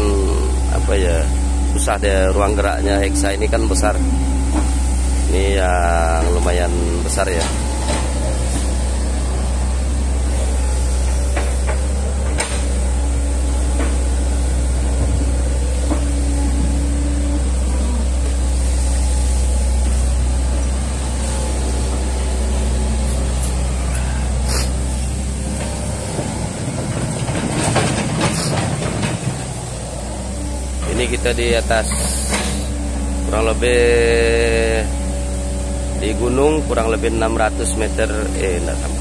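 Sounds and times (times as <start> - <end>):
excavator diesel engine running: 0.0 - 39.0.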